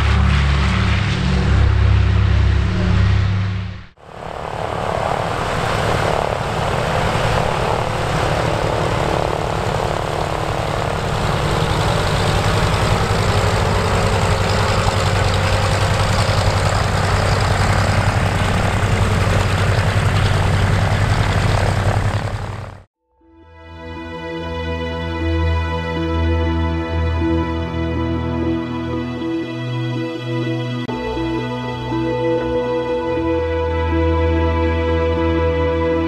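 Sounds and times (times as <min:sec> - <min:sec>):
propeller engines running: 0:00.0 - 0:22.9.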